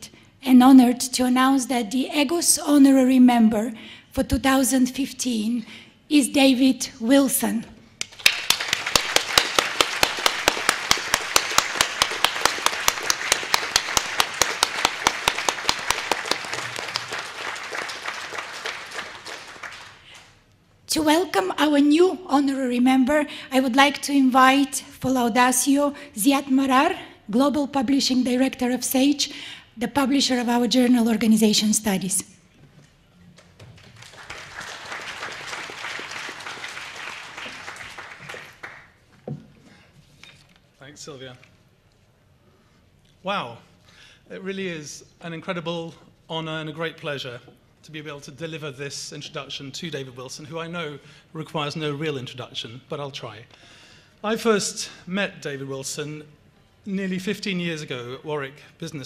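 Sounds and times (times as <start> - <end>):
audience applauding: 8.0 - 20.4, 33.4 - 39.1
close hands clapping sharply: 8.0 - 20.4, 33.4 - 39.0.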